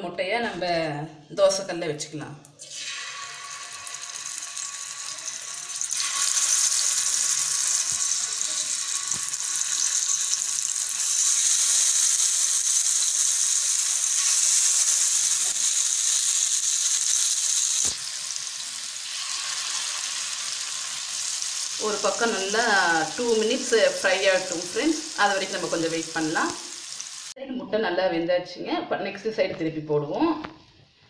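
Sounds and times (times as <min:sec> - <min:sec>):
eggs sizzling in hot oil: 0:02.6 - 0:27.4.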